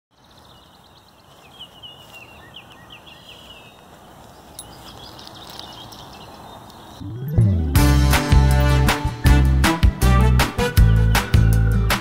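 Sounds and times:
birds chirping: 0.1 - 9.1.

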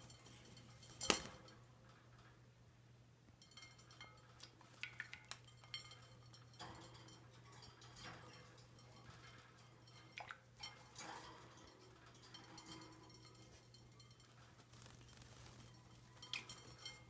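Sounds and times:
bird feet clinking on glass: 0.0 - 2.2, 3.4 - 17.0
wings fluttering: 14.0 - 16.8.

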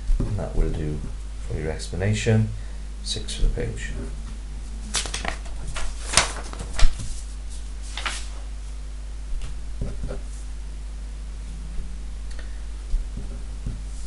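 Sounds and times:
steady low hum: 0.0 - 14.0
paper pages rustling: 4.8 - 8.5.

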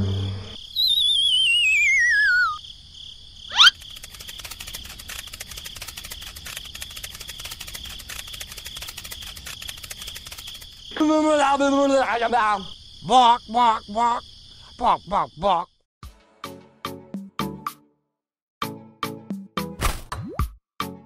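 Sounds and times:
falling wavering whistle: 0.0 - 2.6.

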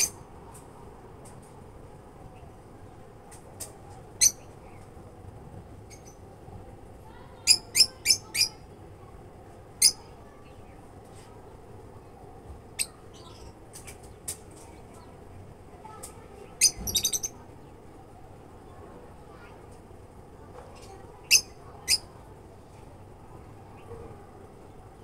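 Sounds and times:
lovebirds chirping shrilly: 7.5 - 8.6, 16.6 - 17.4, 21.2 - 22.1.

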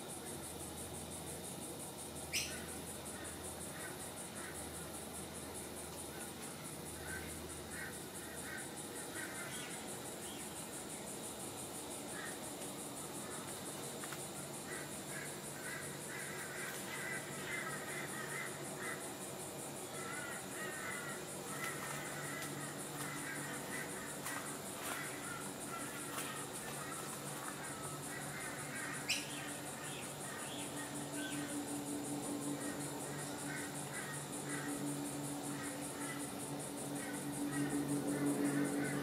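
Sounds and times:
insect trill: 0.0 - 39.0.

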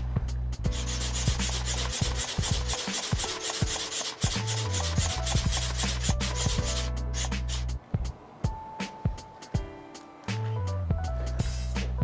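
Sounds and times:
background music: 0.0 - 12.0
hand pump rush of air: 0.7 - 7.8.

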